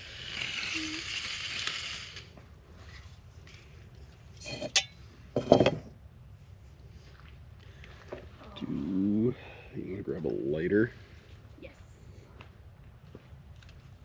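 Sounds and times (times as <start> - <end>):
hiss: 0.0 - 2.3
cookware clanking: 4.4 - 5.8.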